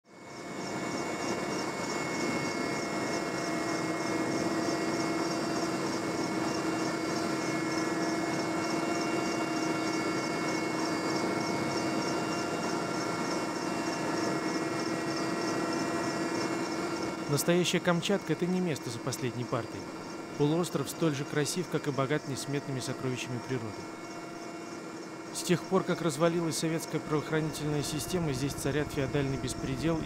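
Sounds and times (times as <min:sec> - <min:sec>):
helicopter in flight: 0:00.1 - 0:30.0
rapid high-pitched pulsing: 0:16.4 - 0:30.0.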